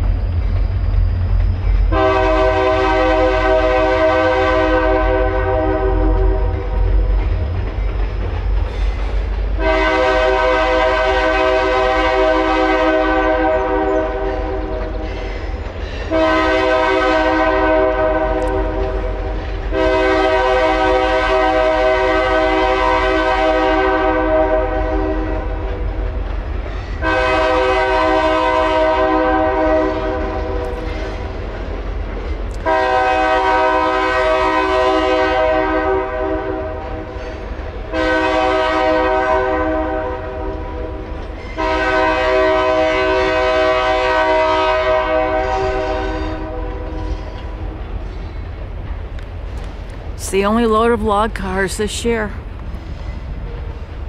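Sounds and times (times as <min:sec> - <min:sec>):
locomotive horn blasts: 0:01.9 - 0:06.9, 0:09.6 - 0:14.8, 0:16.1 - 0:19.1, 0:19.7 - 0:25.5, 0:27.0 - 0:30.8, 0:32.6 - 0:37.0, 0:37.9 - 0:40.9, 0:41.6 - 0:47.0.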